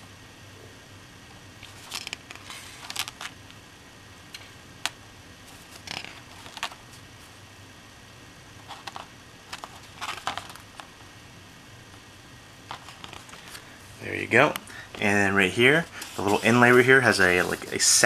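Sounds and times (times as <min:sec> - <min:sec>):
card stock rustling and sliding: 0:01.6 - 0:03.3, 0:05.5 - 0:06.8, 0:08.7 - 0:10.9, 0:16.0 - 0:18.0.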